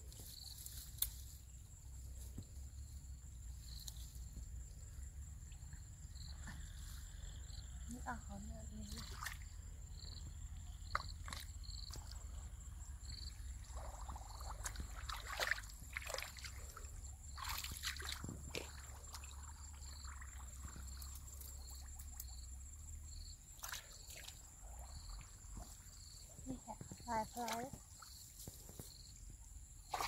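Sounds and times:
hands sloshing through muddy water: 8.8 - 9.6, 10.9 - 12.6, 13.3 - 22.3, 23.5 - 26.0
small splashes: 8.8 - 9.6, 10.9 - 12.5, 13.3 - 22.5, 23.5 - 26.0.

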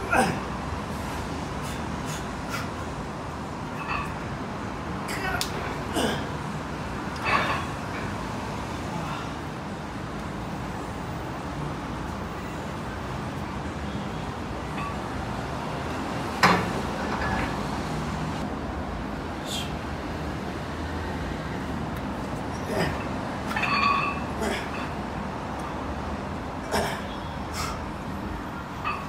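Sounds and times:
steady background hum: 0.0 - 29.0.

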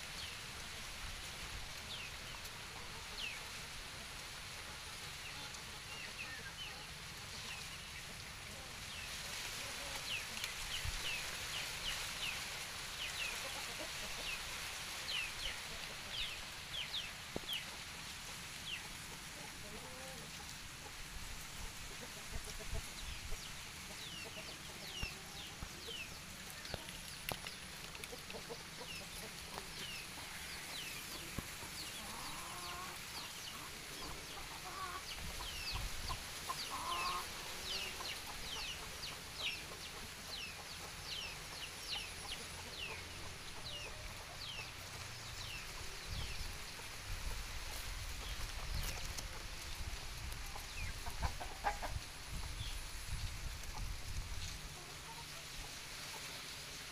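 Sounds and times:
chickens clucking: 13.0 - 56.8.

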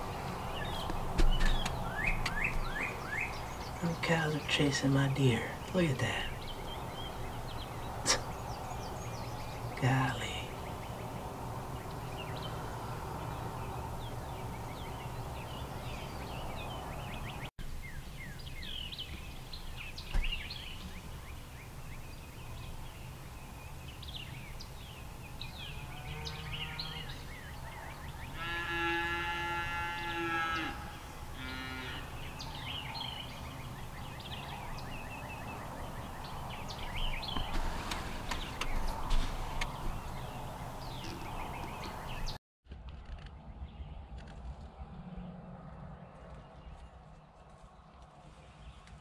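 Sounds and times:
birds chirping: 0.0 - 42.4
cow mooing: 25.8 - 32.2.

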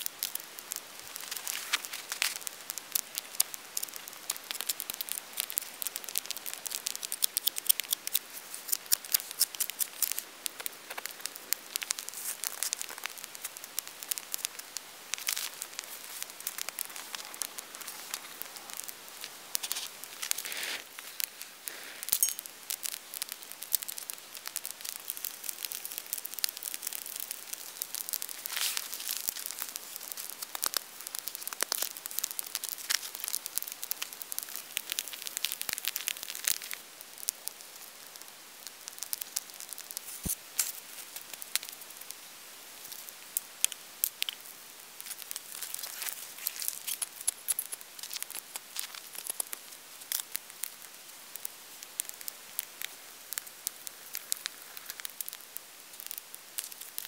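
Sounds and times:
campfire crackling: 0.0 - 57.0.

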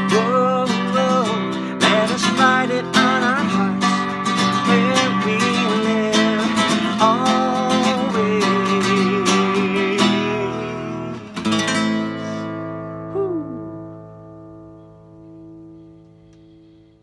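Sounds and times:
acoustic guitar strummed chords: 0.0 - 17.0
person singing held note: 13.1 - 13.7.

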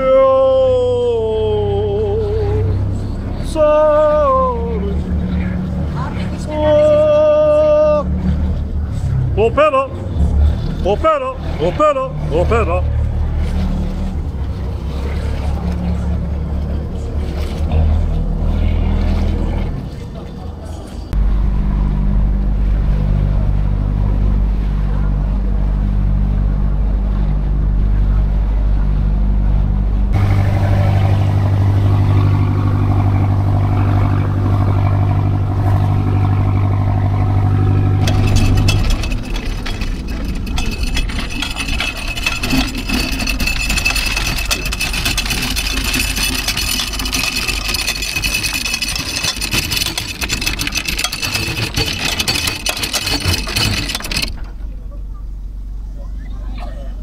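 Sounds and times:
boat engine droning: 0.0 - 57.0.

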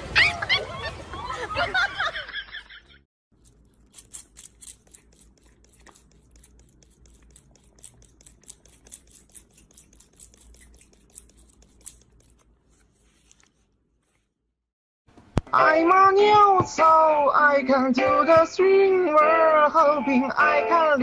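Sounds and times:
brush stroking cat fur: 3.5 - 14.2.

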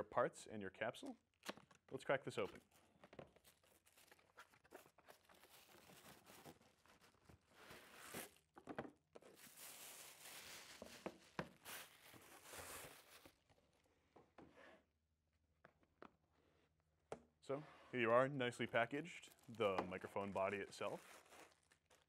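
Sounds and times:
plastic wrap crinkling: 2.6 - 8.5, 9.2 - 13.6, 18.7 - 22.0
cardboard box opened: 2.8 - 8.5, 9.2 - 13.4.

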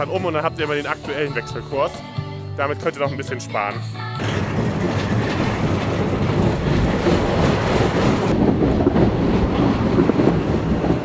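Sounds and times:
roller coaster rattling on track: 4.2 - 11.0.

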